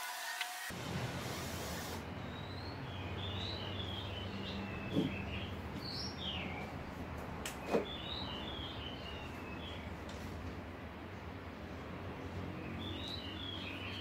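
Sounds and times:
small birds chirping: 2.2s - 6.8s, 12.2s - 14.0s.

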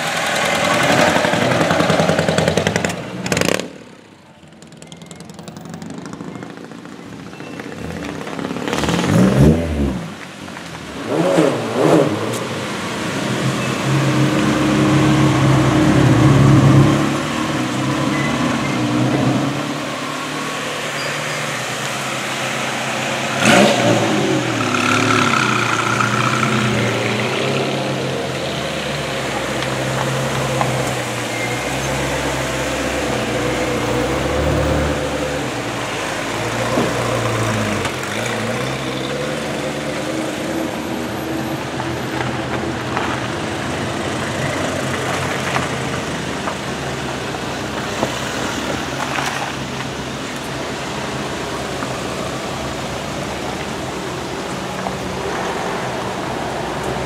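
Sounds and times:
sports cars passing revving: 0.0s - 4.0s, 7.7s - 57.0s.

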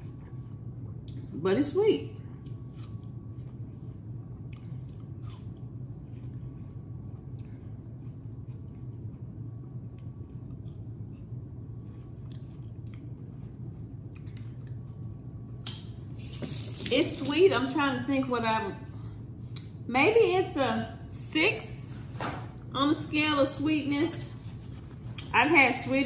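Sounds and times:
person chewing watermelon: 0.0s - 1.3s, 2.2s - 16.3s, 24.8s - 25.3s
steady low hum: 0.0s - 26.0s.

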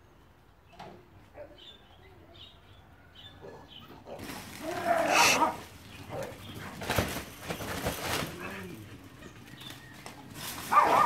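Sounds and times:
dogs barking and growling: 3.4s - 6.9s, 10.6s - 11.0s.

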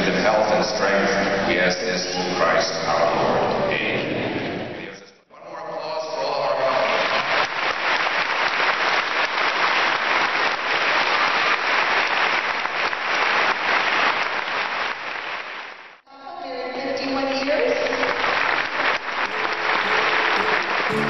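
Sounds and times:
congregation applauding: 6.8s - 15.8s, 18.1s - 21.0s.

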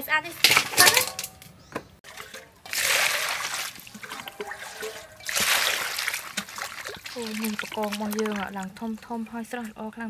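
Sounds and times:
water sloshing with knocks: 1.8s - 9.8s
water gushing into steel bowl: 2.0s - 9.5s.

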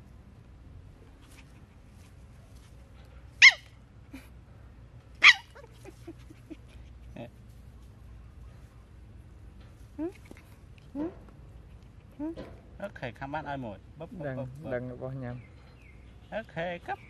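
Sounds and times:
puppy yelping barks: 3.4s - 3.8s, 5.2s - 5.9s.

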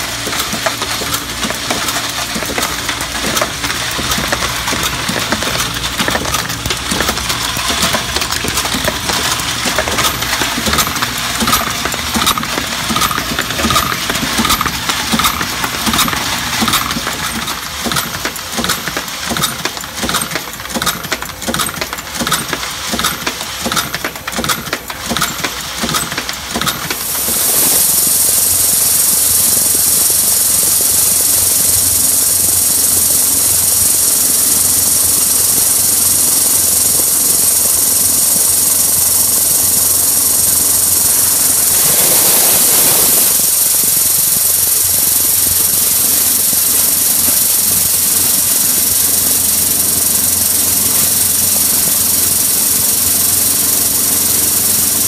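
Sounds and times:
loading machine clicking and clacking: 0.0s - 28.0s
vibrating plate rattling hiss: 0.0s - 55.0s.

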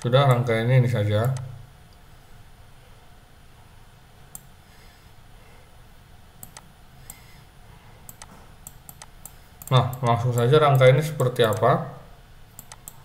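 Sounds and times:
faint low hum: 0.0s - 13.0s
computer mouse clicking: 6.4s - 7.3s, 8.1s - 11.7s, 12.5s - 13.0s.

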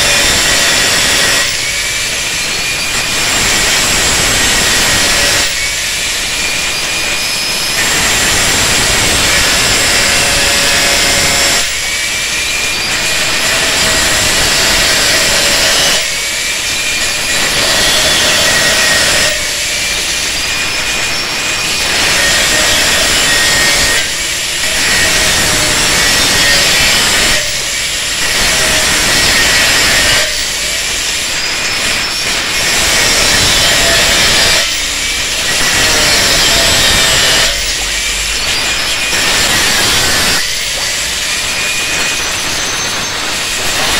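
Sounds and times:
angle grinder cutting steel: 0.0s - 43.9s
grinder motor whine: 0.0s - 43.9s.

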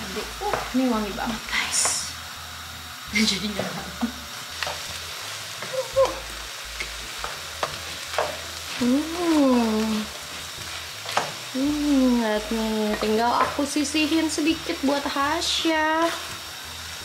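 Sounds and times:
food sizzling in a frying pan: 0.0s - 17.0s
spatula scraping a pan: 4.5s - 9.0s, 9.7s - 11.6s.

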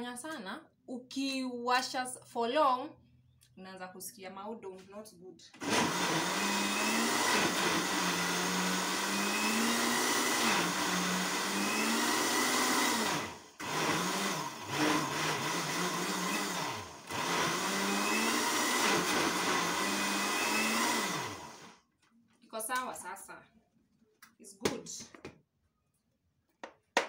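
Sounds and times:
blender motor running: 5.6s - 21.8s.

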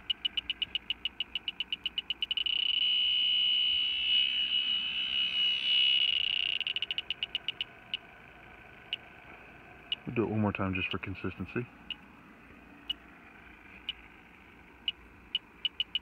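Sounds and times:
leak detector alarm beeping: 0.0s - 8.1s, 14.9s - 16.0s.

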